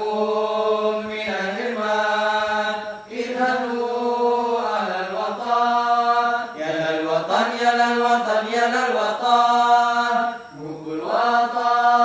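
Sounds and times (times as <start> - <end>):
male vocal group singing: 0.0 - 12.0.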